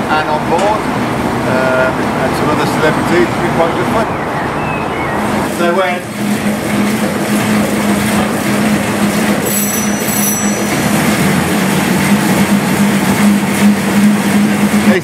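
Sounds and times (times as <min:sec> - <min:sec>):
steam engine running: 0:05.2 - 0:15.0
short high squeaks: 0:09.4 - 0:11.4.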